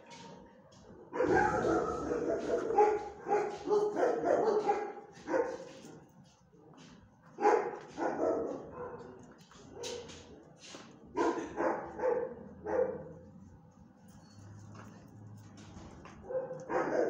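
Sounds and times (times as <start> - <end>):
dog barking: 1.1 - 5.8, 7.4 - 10.2, 11.2 - 13.2, 16.2 - 17.0.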